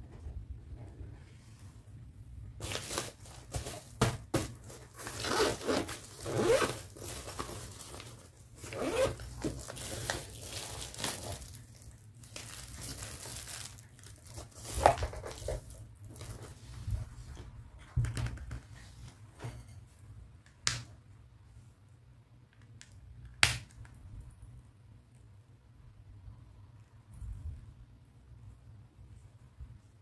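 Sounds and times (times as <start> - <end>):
pouch rustling: 2.6 - 11.6
zipper being pulled: 5.1 - 6.9, 8.6 - 9.5.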